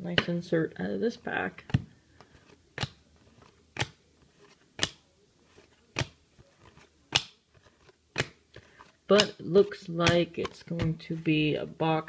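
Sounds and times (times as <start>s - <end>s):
faint rustling of cards: 0.1s - 12.0s
trading cards snapping: 1.6s - 11.0s.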